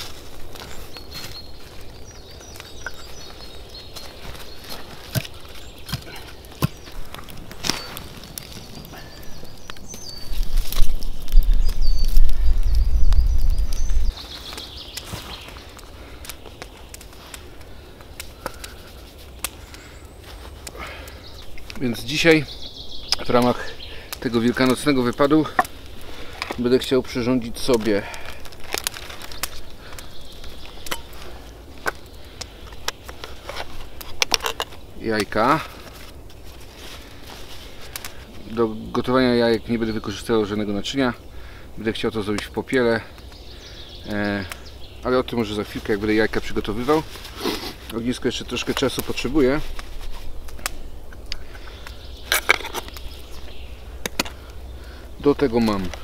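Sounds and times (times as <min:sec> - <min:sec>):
firewood knocking: 0:00.0 - 0:08.7, 0:23.2 - 0:26.9
campfire crackling: 0:00.0 - 0:56.0.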